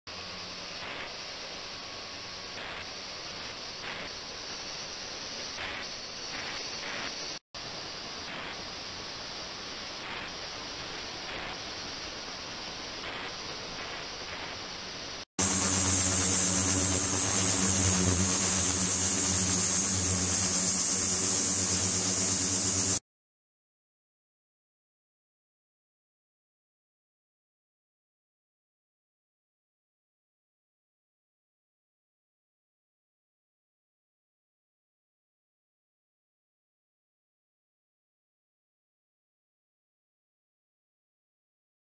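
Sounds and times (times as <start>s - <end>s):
ultrasonic water hiss: 0.1s - 23.0s
ultrasonic cleaner humming: 15.4s - 23.0s.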